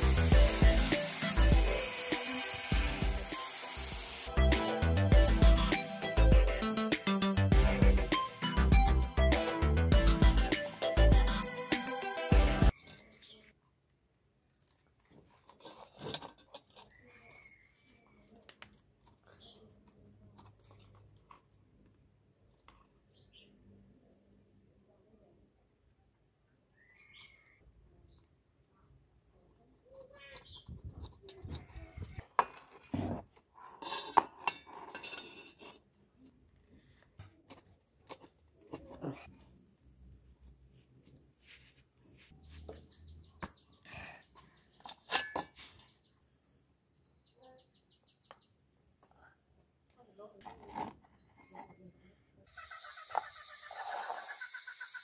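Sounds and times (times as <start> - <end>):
faint bird chirps: 16.8 - 20.2, 24.8 - 28.3, 42.4 - 48.6
bird chirping trill: 42.4 - 48.6.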